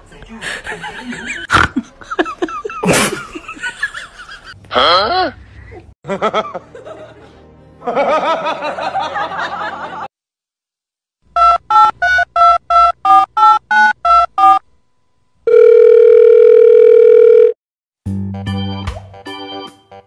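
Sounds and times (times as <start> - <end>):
loud steady telephone tone: 15.5 - 17.6.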